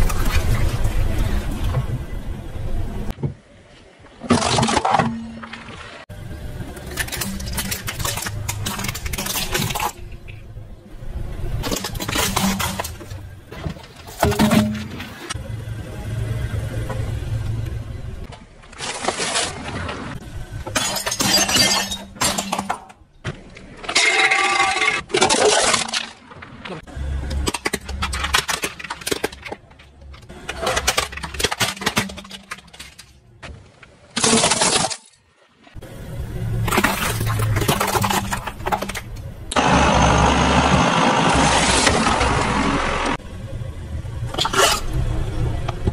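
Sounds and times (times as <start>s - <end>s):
plastic toys cracking under tyre: 23.9s - 33.2s.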